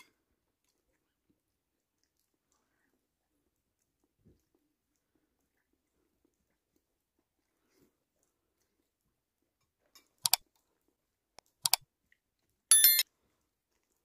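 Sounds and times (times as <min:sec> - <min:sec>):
ringing clink: 0:12.7 - 0:13.0.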